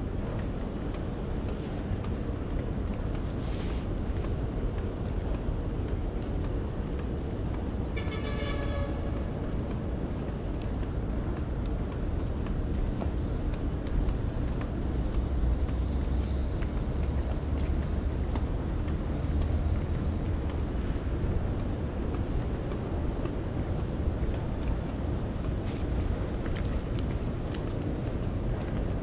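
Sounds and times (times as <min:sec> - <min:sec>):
passing vehicles rumbling: 0:00.0 - 0:29.0.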